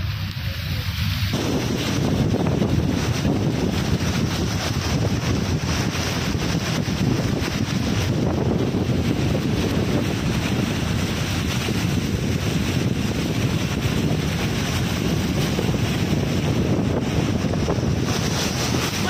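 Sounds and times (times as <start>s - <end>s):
car driving through floodwater: 0.0s - 19.0s
water spraying from tyres: 0.0s - 19.0s
wind buffeting microphone: 0.0s - 19.0s.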